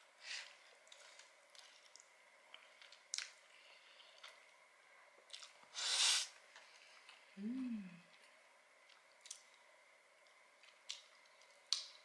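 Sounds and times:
closed-mouth humming: 0:07.3 - 0:08.1.

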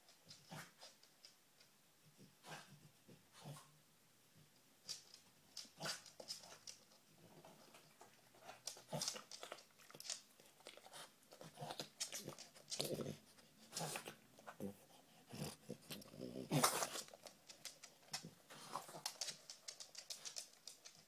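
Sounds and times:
dog sniffing and snuffling: 0:04.9 - 0:21.0
dog chewing a treat: 0:07.6 - 0:14.7.

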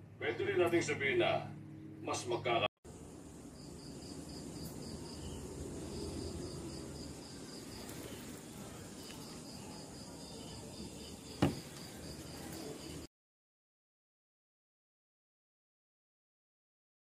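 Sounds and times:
faint high-pitched chirping: 0:03.6 - 0:13.1.

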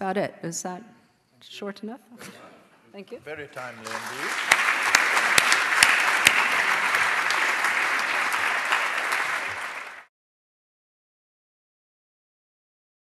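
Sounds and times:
audience applauding: 0:03.5 - 0:10.1.

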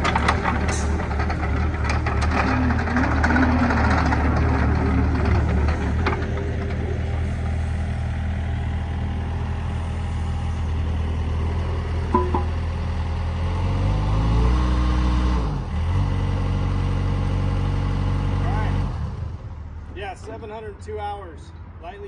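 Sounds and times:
excavator diesel engine running: 0:00.0 - 0:13.6.

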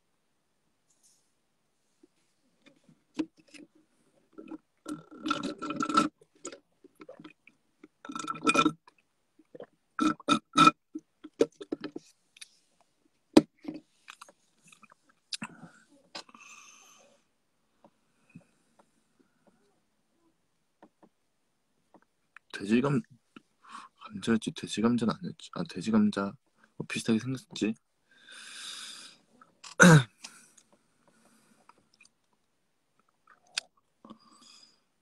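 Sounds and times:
cup noise: 0:04.4 - 0:12.0.

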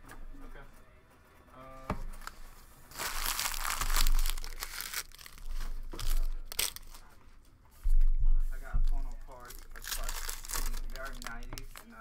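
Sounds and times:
plastic wrapping tearing and crinkling: 0:02.2 - 0:07.1, 0:09.3 - 0:12.0.

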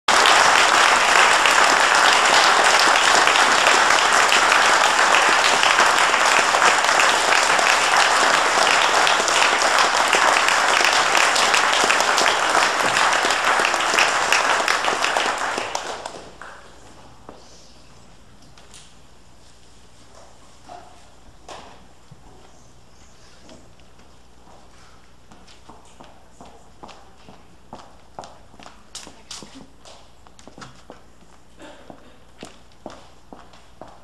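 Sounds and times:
audience applauding: 0:00.1 - 0:16.7.

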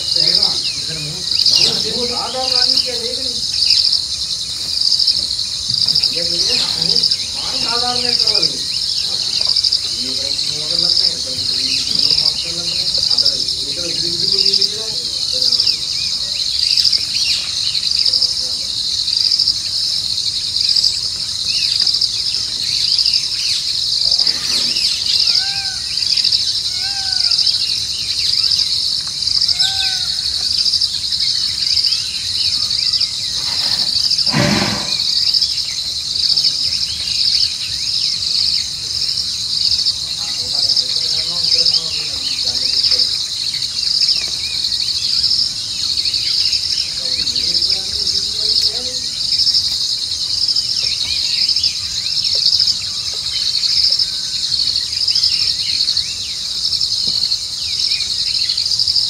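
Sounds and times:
low voices: 0:00.0 - 0:03.6, 0:05.6 - 0:19.8, 0:23.9 - 0:25.8, 0:32.6 - 0:35.3, 0:38.7 - 0:44.7, 0:45.5 - 0:49.3
short chirping calls: 0:00.0 - 0:38.6
crickets chirping: 0:00.0 - 0:59.0
thud: 0:33.6 - 0:35.2.

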